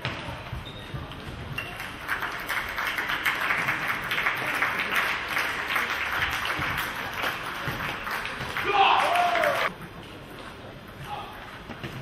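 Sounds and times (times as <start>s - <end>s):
spectators applauding: 1.8s - 9.7s.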